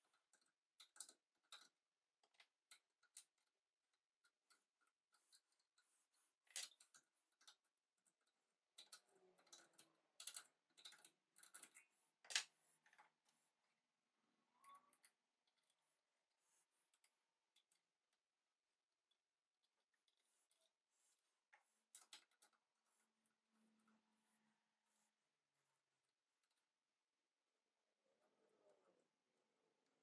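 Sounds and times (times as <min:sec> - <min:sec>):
small metal clicks and scrapes: 0:00.0 - 0:13.6, 0:19.1 - 0:25.1.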